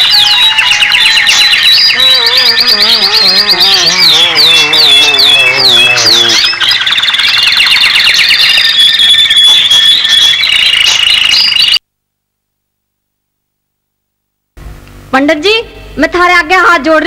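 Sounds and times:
high-pitched warbling trill: 0.0s - 11.8s.

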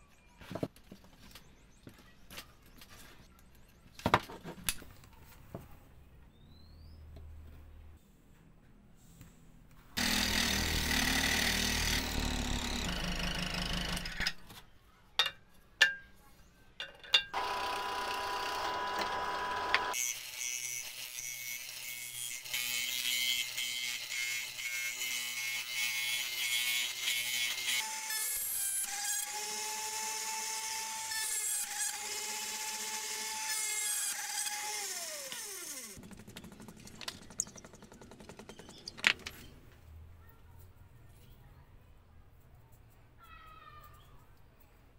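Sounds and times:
disc sander grinding wood: 10.0s - 14.1s, 17.4s - 20.3s, 24.4s - 39.0s
rotary tool whining: 10.0s - 14.4s, 17.4s - 20.2s, 23.4s - 39.5s.

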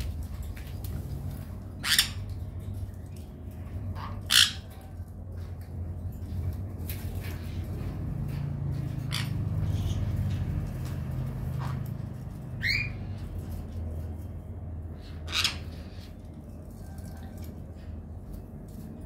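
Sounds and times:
parrot squawk: 1.8s - 2.2s, 4.0s - 4.8s, 9.0s - 10.0s, 12.6s - 13.0s, 15.1s - 16.0s.

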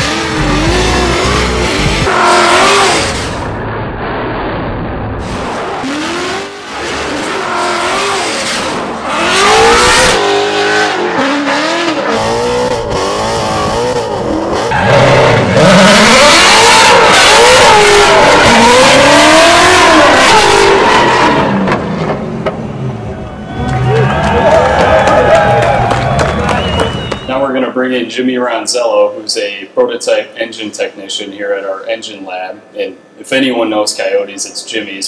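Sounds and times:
car engine revving hard: 0.0s - 3.5s, 5.2s - 22.8s.

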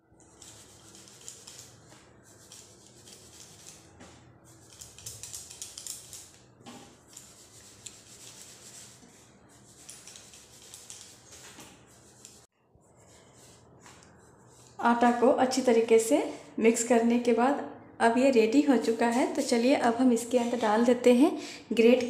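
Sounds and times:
hands rubbing flour mix: 0.3s - 3.9s, 7.0s - 12.5s.

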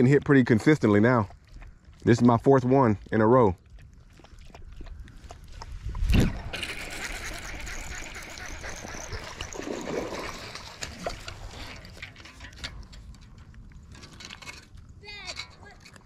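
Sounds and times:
fish splashing at water surface: 5.3s - 12.5s.

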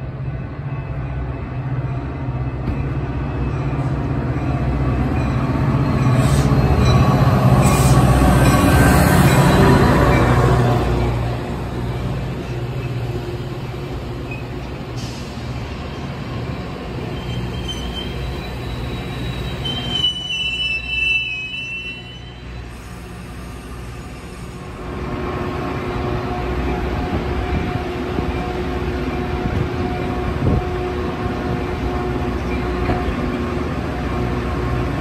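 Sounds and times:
train cars rumbling past: 0.0s - 35.0s
high-pitched wheel squeals: 17.0s - 23.1s.

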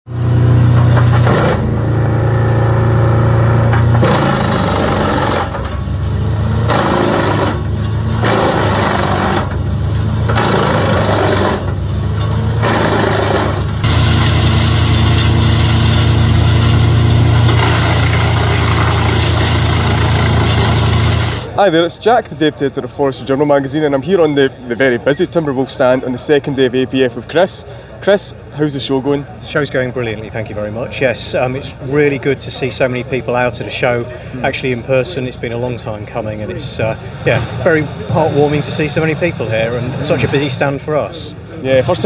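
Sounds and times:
woodchipper engine drone: 0.1s - 21.6s, 34.2s - 42.0s
grinding of branches being chipped: 0.8s - 21.6s.

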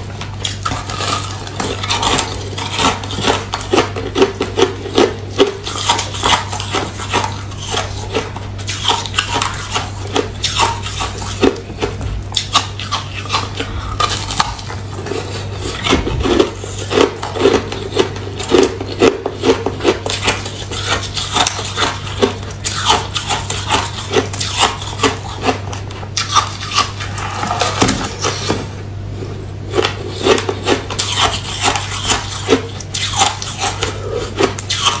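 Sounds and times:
chewing and crunching ice: 0.2s - 28.6s, 29.2s - 35.0s
low hum: 7.9s - 19.7s.

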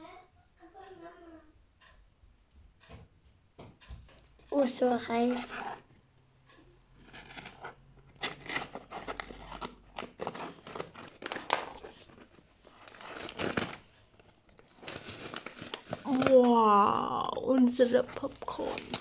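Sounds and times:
paper rustling and crinkling: 4.6s - 5.8s, 7.0s - 19.0s
scissors snipping paper: 7.2s - 13.8s, 14.6s - 19.0s.

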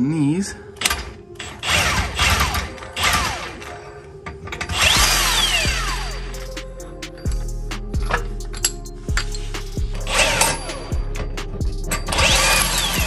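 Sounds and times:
motor whining down: 4.7s - 6.4s, 12.2s - 13.0s
impact wrench hammering: 10.0s - 13.0s.

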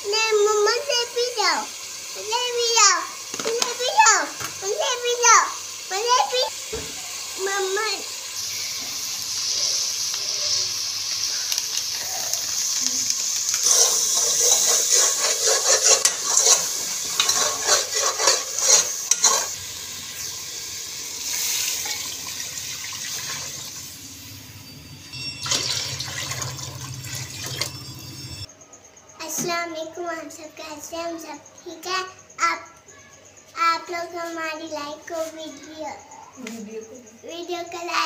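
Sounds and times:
spices sizzling in oil: 0.0s - 28.5s
metal spoon scraping pot: 13.5s - 19.6s.

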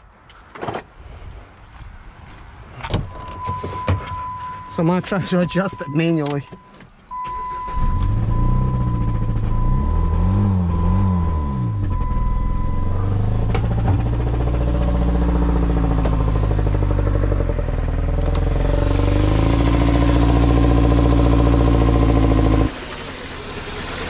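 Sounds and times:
car engine revving: 7.4s - 24.0s.

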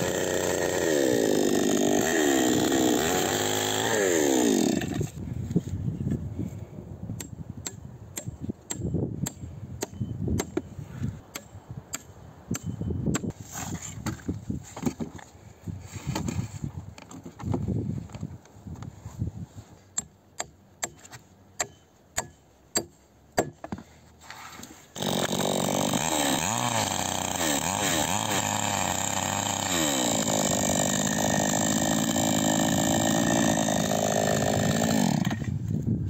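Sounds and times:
chainsaw cutting wood: 0.0s - 5.2s, 25.0s - 35.6s.

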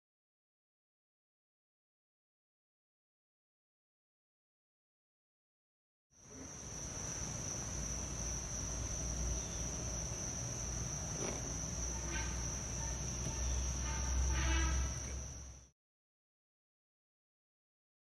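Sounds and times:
insects chirring: 6.2s - 15.7s.

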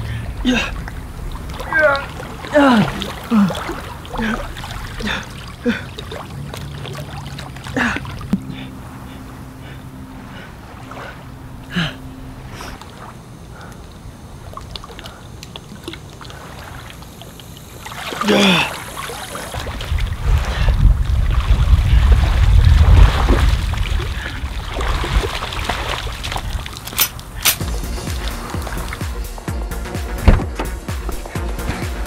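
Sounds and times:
heavy breathing: 0.0s - 0.8s, 1.8s - 6.1s, 7.7s - 12.9s
low steady hum: 0.0s - 32.0s
water sloshing: 0.0s - 32.0s
man groaning in pain: 0.4s - 0.8s, 1.6s - 5.8s, 18.2s - 18.8s.

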